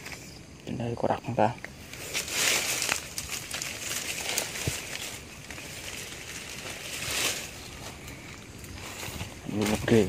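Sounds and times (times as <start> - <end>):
leaves and fronds rustling: 0.0 - 10.0.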